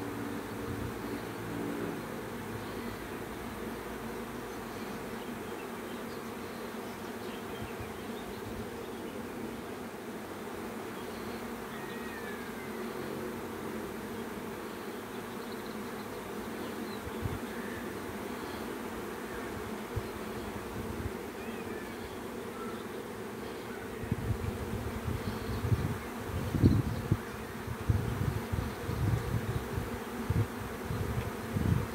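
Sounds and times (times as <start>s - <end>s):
bees buzzing: 0.0s - 31.9s.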